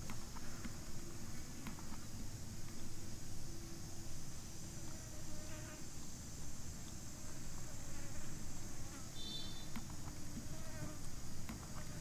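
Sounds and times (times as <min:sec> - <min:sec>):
high-pitched insect chorus: 0:02.9 - 0:12.0
faint short chirps: 0:09.2 - 0:09.7.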